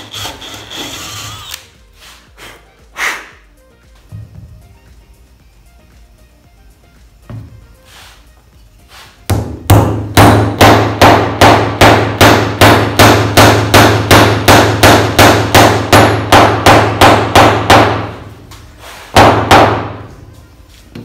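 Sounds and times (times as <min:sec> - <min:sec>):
hammer striking wooden dowel: 0:09.3 - 0:18.2, 0:19.1 - 0:20.1.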